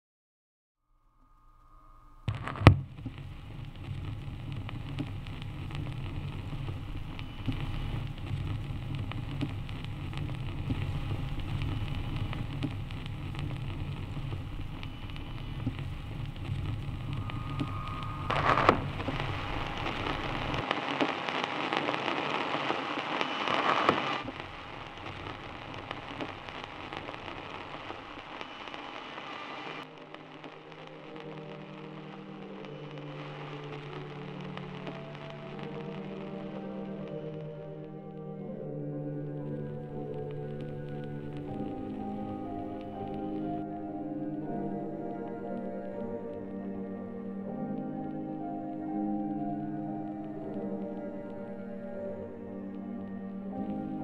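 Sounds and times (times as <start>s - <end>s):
low rumble: 0.9s - 20.7s
hissing crackling noise: 1.2s - 54.0s
sharp crack: 2.2s - 37.2s.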